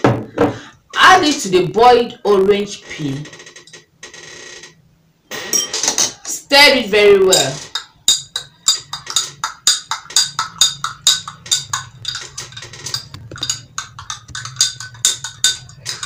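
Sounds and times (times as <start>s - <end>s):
teaspoon clinking in glass: 7.7s - 12.2s, 12.9s - 16.0s.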